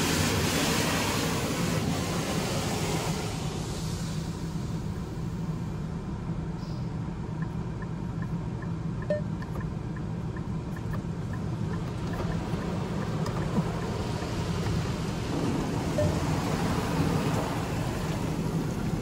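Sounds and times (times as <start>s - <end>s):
water spray: 0.0s - 4.7s
light ticking: 7.4s - 14.8s.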